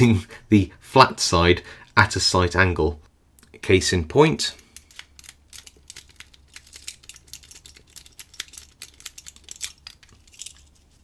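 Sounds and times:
lock pick raking in padlock: 0:04.7 - 0:11.0.

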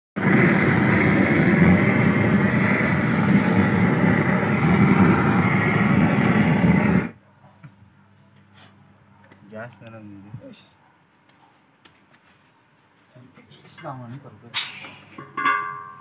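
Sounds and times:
gas torch roaring: 0:00.2 - 0:07.2, 0:14.5 - 0:15.2.

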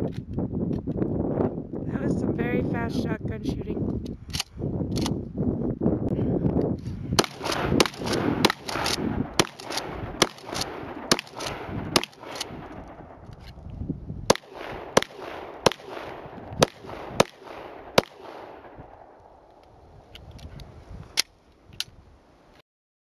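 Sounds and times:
shotgun blasts with echo: 0:07.1 - 0:13.2, 0:14.3 - 0:19.4
pistol shots: 0:07.2 - 0:13.2, 0:14.3 - 0:19.4.

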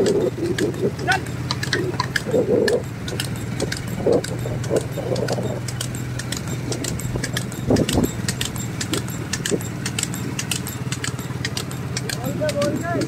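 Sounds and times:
harness jingling: 0:00.0 - 0:13.0
hooves clicking on pavement: 0:00.0 - 0:13.0
rolling cart hum: 0:00.0 - 0:13.0.

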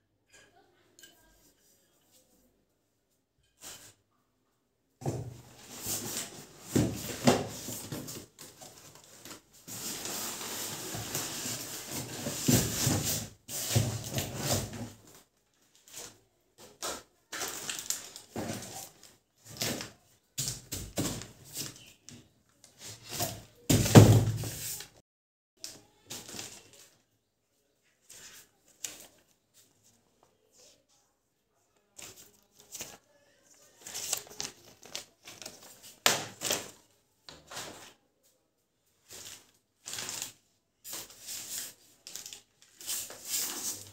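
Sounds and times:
plastic and cardboard rustling: 0:05.0 - 0:25.0, 0:25.6 - 0:27.1, 0:31.9 - 0:38.0, 0:39.0 - 0:43.9.

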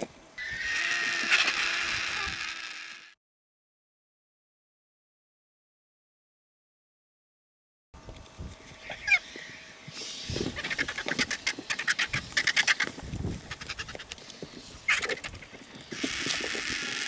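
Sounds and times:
vultures cackling and squealing: 0:00.4 - 0:03.2, 0:08.8 - 0:17.0.

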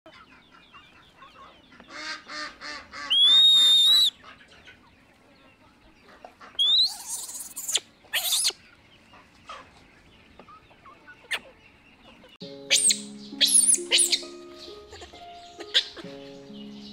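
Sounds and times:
chicken clucking: 0:00.1 - 0:03.4, 0:04.0 - 0:16.9
baby monkey squealing: 0:03.1 - 0:04.1, 0:06.6 - 0:08.6, 0:12.7 - 0:14.3, 0:14.9 - 0:16.0.

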